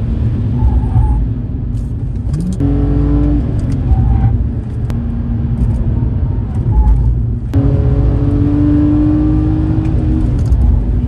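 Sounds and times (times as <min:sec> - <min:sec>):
road noise inside car: 0:00.0 - 0:11.0
car engine revving: 0:02.3 - 0:06.6, 0:07.4 - 0:11.0.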